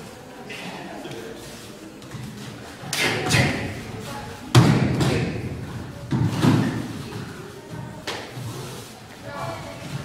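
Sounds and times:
heavy thuds on floor with echo: 4.5 - 6.9.

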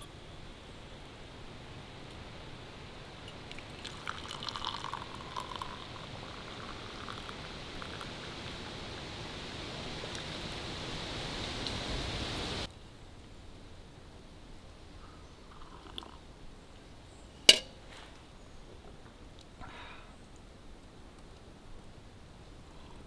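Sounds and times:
tea pouring into a mug: 3.3 - 8.7, 15.5 - 16.2.

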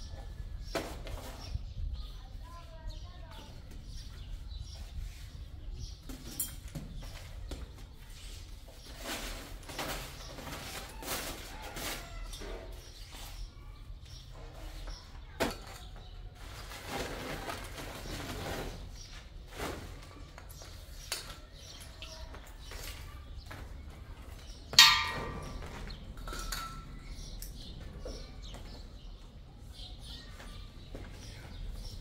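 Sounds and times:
loud ringing clang: 24.8 - 26.8.

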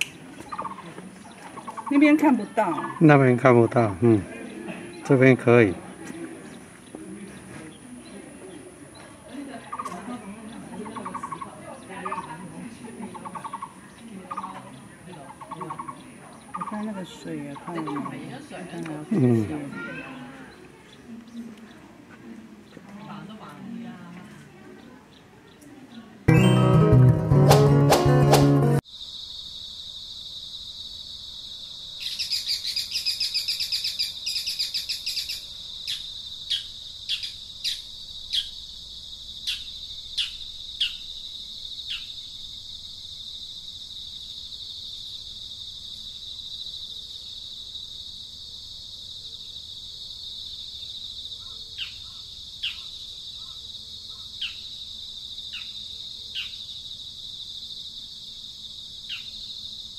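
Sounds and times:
bird trilling: 0.5 - 0.9, 1.5 - 3.2, 10.8 - 12.3, 13.2 - 18.2
high insect buzz: 28.8 - 59.9.

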